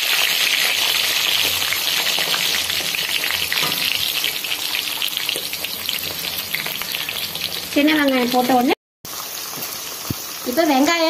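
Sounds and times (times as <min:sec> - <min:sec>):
frying in hot oil sizzling: 0:00.0 - 0:11.0.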